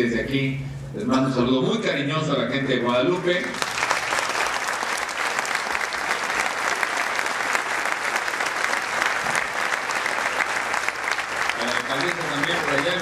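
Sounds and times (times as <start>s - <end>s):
audience applauding: 3.4s - 13.0s.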